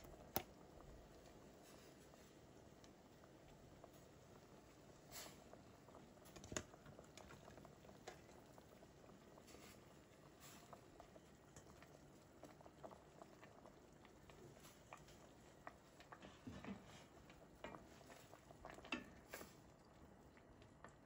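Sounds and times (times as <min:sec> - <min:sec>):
curry bubbling in a pot: 0:00.0 - 0:21.0
wooden spoon stirring: 0:14.2 - 0:19.5.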